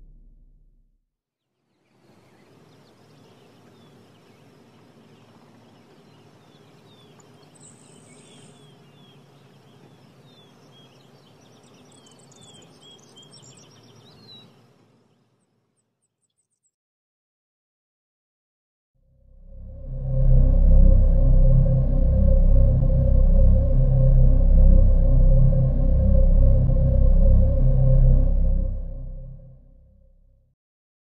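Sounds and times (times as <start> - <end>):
birds chirping: 1.6 - 16.7
steady background hiss: 1.7 - 15.6.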